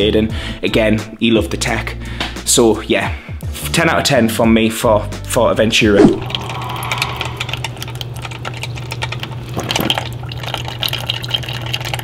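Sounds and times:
coffee maker humming: 0:06.2 - 0:12.0
coffee pouring into a cup: 0:06.2 - 0:12.0.

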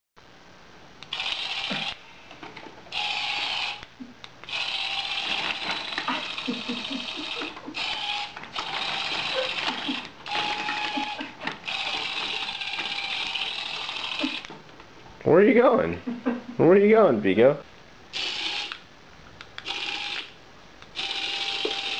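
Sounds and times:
toy motor whirring: 0:01.1 - 0:02.0, 0:02.9 - 0:14.5, 0:18.2 - 0:18.8, 0:19.6 - 0:21.9.

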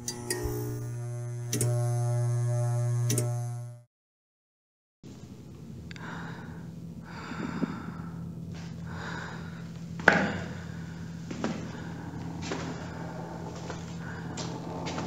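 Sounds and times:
low steady hum: 0:00.0 - 0:03.8, 0:05.1 - 0:15.0
soft breathy swells: 0:10.4 - 0:15.0.

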